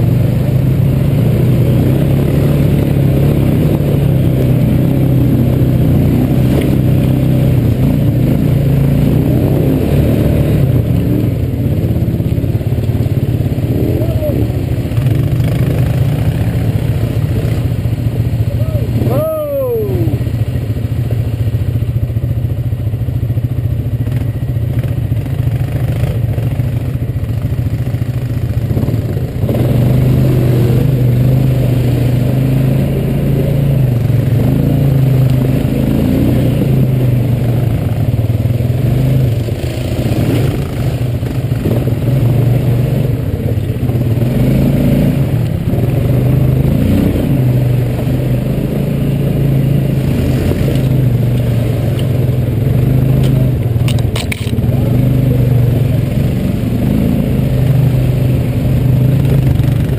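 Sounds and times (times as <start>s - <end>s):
atv engine revving: 0.0s - 59.9s.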